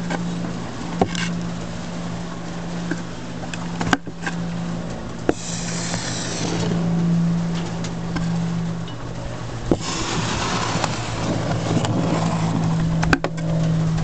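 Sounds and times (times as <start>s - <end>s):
rotary drum motor humming: 0.0s - 14.0s.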